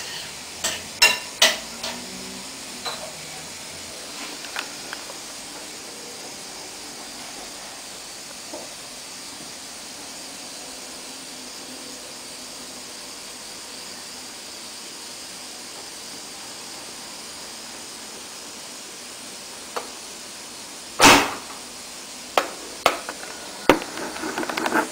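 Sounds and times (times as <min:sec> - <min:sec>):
spear gun firing bang: 0:21.0 - 0:21.4.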